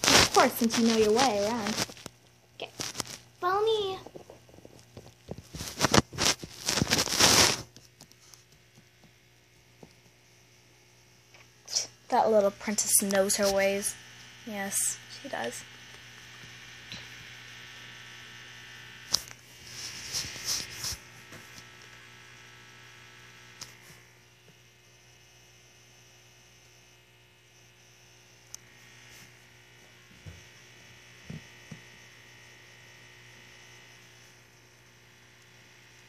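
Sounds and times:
rustling: 0:00.0 - 0:03.3, 0:04.0 - 0:08.8
low electrical hum: 0:00.0 - 0:36.0.

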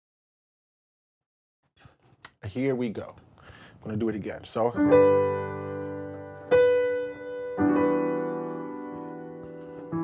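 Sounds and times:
slow piano chords: 0:04.8 - 0:10.0.

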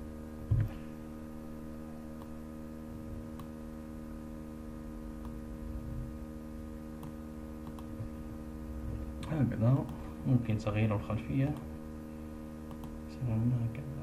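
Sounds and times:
low electrical hum: 0:00.0 - 0:14.0
computer mouse clicks: 0:07.0 - 0:07.9, 0:12.7 - 0:13.0.

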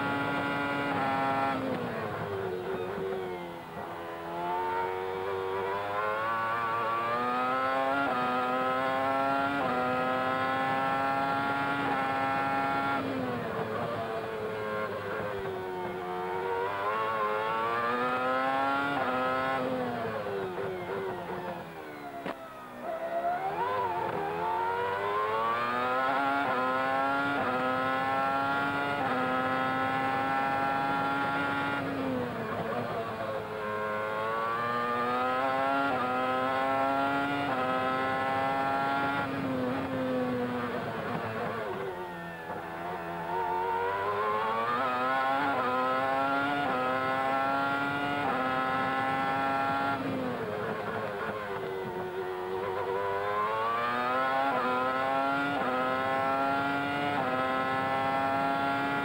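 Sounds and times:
racing car engine revving: 0:00.0 - 0:03.4, 0:04.3 - 0:15.4, 0:23.2 - 0:41.8, 0:42.5 - 0:59.0.

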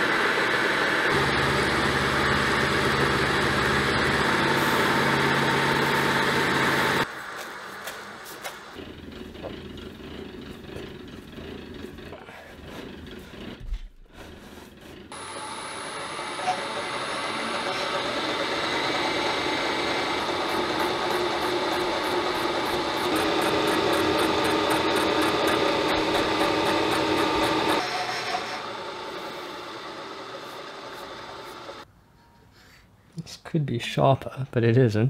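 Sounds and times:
milling machine cutting steel: 0:00.0 - 0:07.1, 0:15.0 - 0:31.8.

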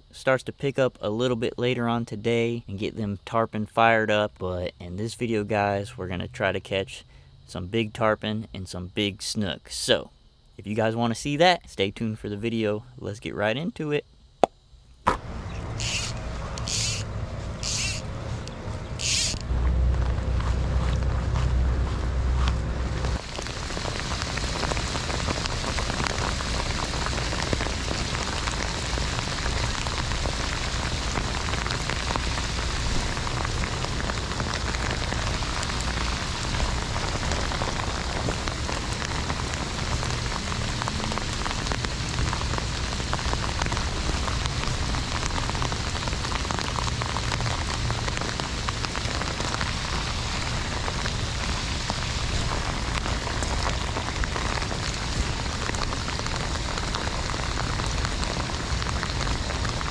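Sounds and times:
low rumble: 0:15.2 - 0:26.1
heavy rain on a pond: 0:15.2 - 0:59.9.

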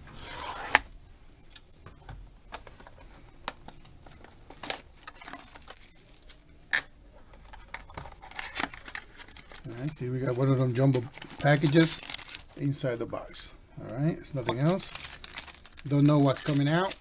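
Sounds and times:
plastic wrap crinkling: 0:02.8 - 0:06.5, 0:07.6 - 0:12.8, 0:13.9 - 0:17.0.

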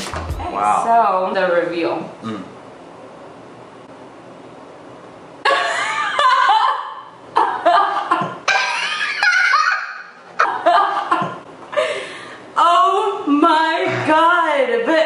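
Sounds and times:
woman laughing hard: 0:05.5 - 0:12.1.

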